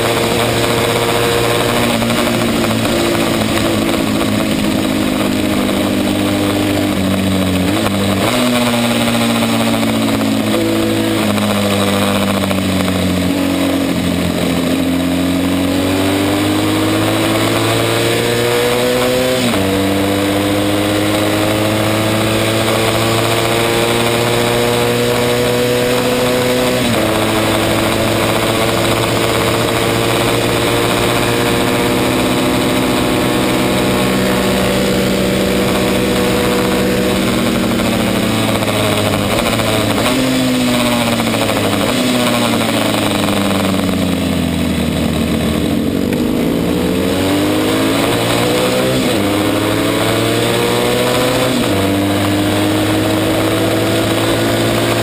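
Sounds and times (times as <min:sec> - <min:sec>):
racing motorcycle engine: 0:00.0 - 0:55.0.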